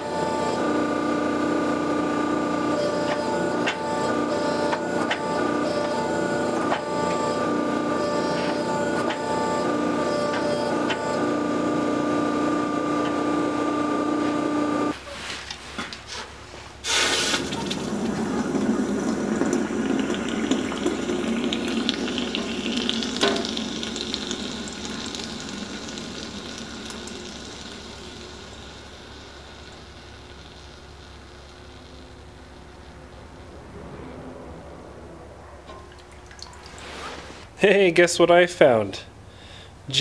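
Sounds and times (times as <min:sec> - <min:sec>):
press motor humming: 0:00.0 - 0:15.0, 0:17.2 - 0:33.6
hot metal hissing in water: 0:16.8 - 0:17.6
sizzling and bubbling water: 0:16.8 - 0:34.1.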